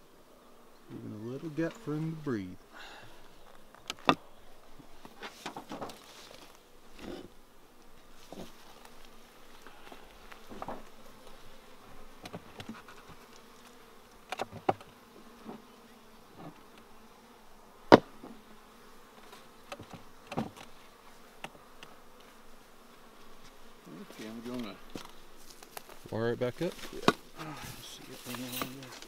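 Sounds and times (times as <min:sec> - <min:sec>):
bees buzzing: 0:00.0 - 0:29.0
knocks and clicks of hive equipment: 0:03.7 - 0:04.2, 0:05.0 - 0:06.0, 0:14.3 - 0:15.6, 0:19.2 - 0:20.7.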